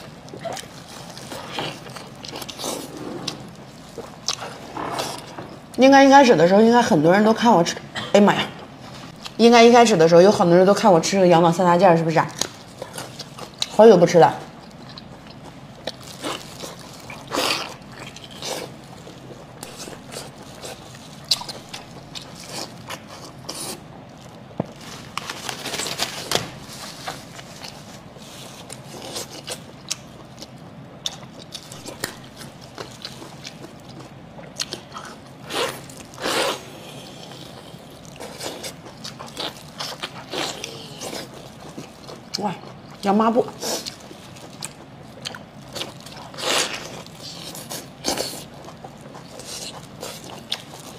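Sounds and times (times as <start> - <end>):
wet chewing: 27.0 - 50.9.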